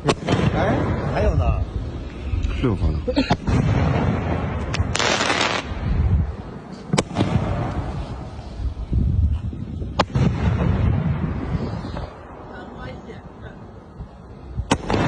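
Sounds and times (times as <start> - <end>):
firework shells bursting: 3.3 - 5.8
low rumble: 5.6 - 15.0.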